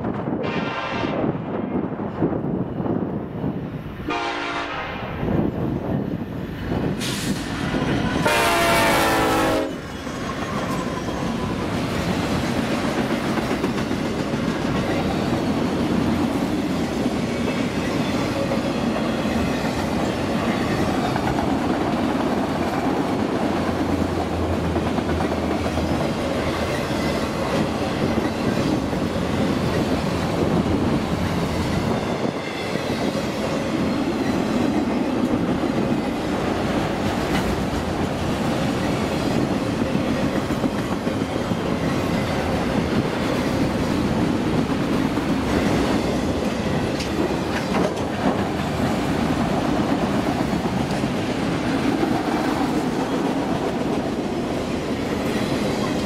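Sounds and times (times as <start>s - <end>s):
train wheels rumbling and clacking: 0.0s - 56.0s
diesel locomotive horn blast: 0.4s - 1.2s, 4.1s - 5.1s, 8.2s - 9.8s.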